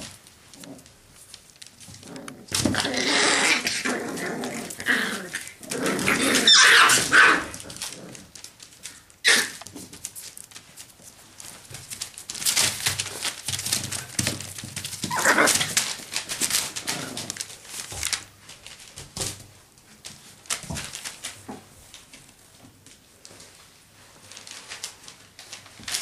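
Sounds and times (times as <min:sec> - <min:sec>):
puppies scuffling and rustling: 0:00.0 - 0:26.0
puppy cry: 0:04.6 - 0:07.8, 0:09.2 - 0:09.6, 0:15.1 - 0:15.7.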